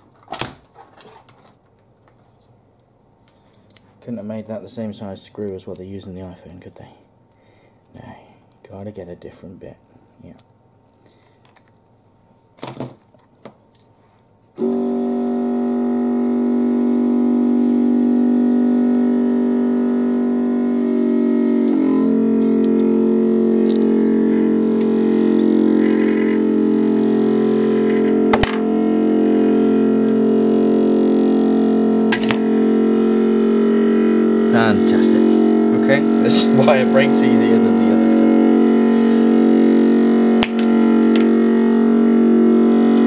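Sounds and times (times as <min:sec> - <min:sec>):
synth drone of held chords: 0:14.6 - 0:43.0.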